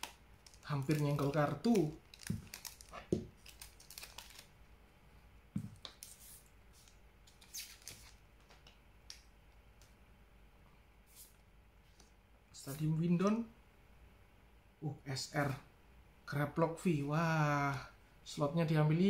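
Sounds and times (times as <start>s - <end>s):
cards rustling: 0.0s - 4.5s, 5.7s - 8.7s
wrapper crinkling: 0.0s - 4.5s.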